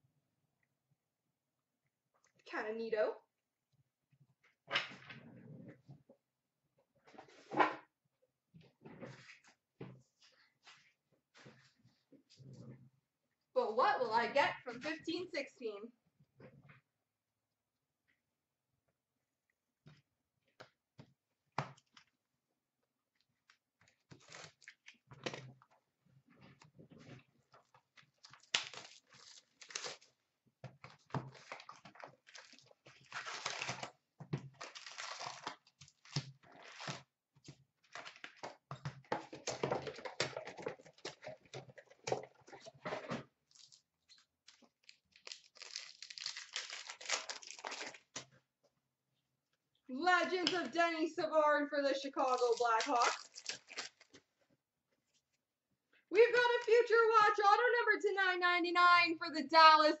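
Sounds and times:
cardboard and wrappers rustling: 27.0 - 37.1, 37.8 - 48.3, 52.2 - 54.3
wrapper tearing open: 28.2 - 30.2, 31.3 - 33.9, 34.5 - 37.0, 43.5 - 48.2, 52.3 - 54.1.

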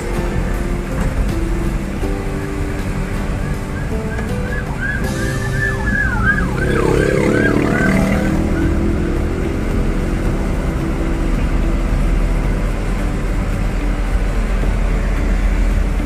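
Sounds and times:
traffic engine and road noise: 0.0 - 16.0
siren-like horn chirps: 3.3 - 8.7.

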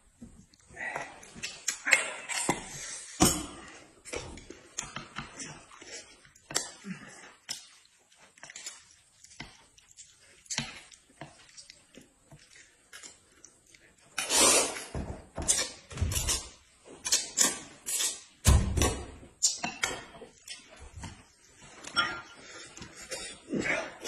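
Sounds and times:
chewing: 4.4 - 14.2
slurping noodles: 14.1 - 14.9.

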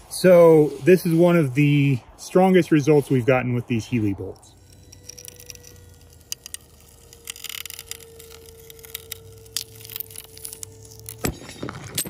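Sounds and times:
low hum: 0.0 - 12.0
faint steady tone: 3.2 - 11.7.

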